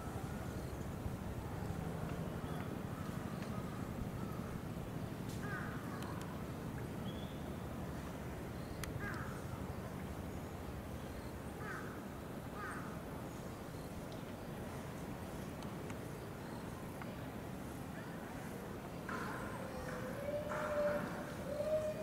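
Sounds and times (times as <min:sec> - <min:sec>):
crows cawing: 0:05.4 - 0:05.8.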